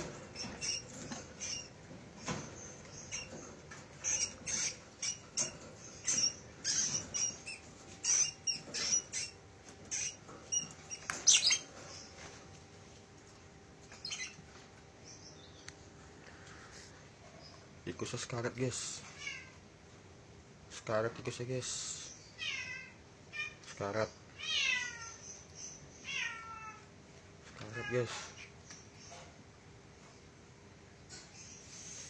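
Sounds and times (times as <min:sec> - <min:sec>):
high-pitched squeaks and chirps: 0:00.0 - 0:12.3, 0:13.9 - 0:14.5.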